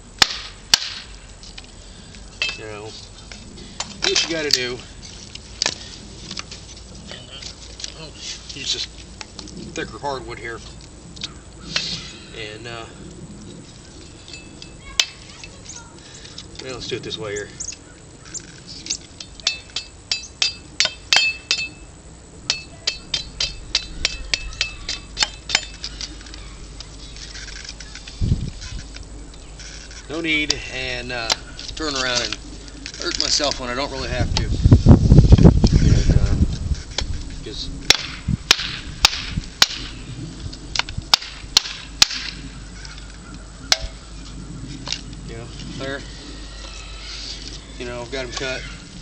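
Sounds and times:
machete chopping into wood: 0:00.2 - 0:01.1, 0:37.9 - 0:39.9, 0:40.8 - 0:42.4
machete blows ringing: 0:19.4 - 0:21.8, 0:22.5 - 0:25.8.

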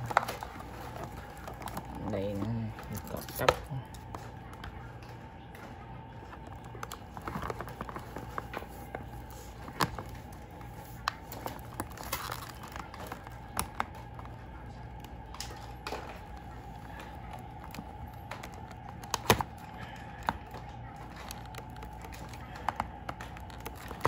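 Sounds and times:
faint steady hum: 0:00.0 - 0:24.0
packaging rustling and clicking: 0:00.0 - 0:24.0.

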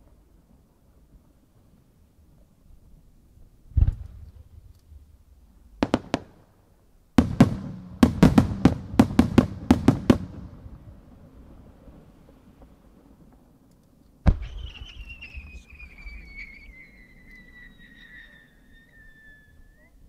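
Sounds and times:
firework rumble: 0:00.0 - 0:06.4, 0:07.2 - 0:20.0
firework booms and bangs: 0:05.8 - 0:06.4, 0:07.2 - 0:12.9, 0:14.2 - 0:16.3.

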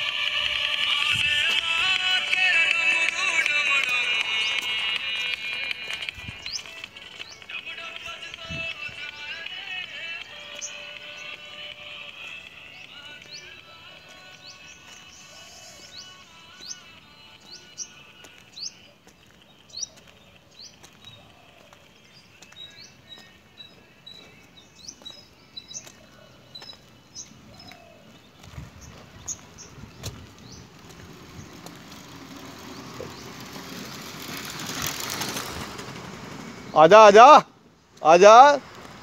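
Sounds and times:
bird chirping: 0:00.1 - 0:34.4
motor scooter engine: 0:28.8 - 0:36.9.

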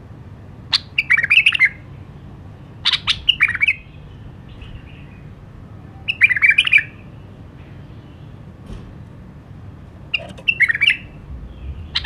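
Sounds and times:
bird warbling song: 0:10.1 - 0:12.0.

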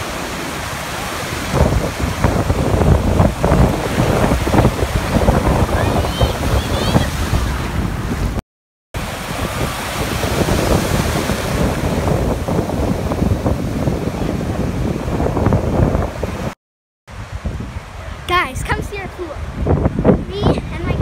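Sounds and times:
breaking surf: 0:00.0 - 0:08.4, 0:09.0 - 0:16.6
wind buffeting microphone: 0:00.0 - 0:08.4, 0:09.0 - 0:21.0.

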